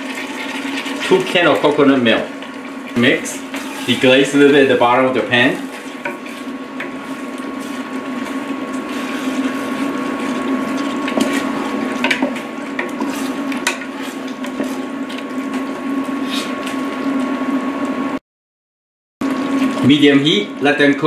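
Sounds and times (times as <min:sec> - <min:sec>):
spatula stirring thick curry: 0:02.9 - 0:04.6, 0:05.3 - 0:15.6.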